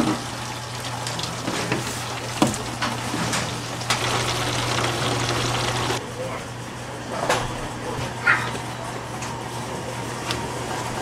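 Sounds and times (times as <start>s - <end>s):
liquid pouring into jugs: 0.0s - 6.0s
machine low hum: 3.6s - 6.0s.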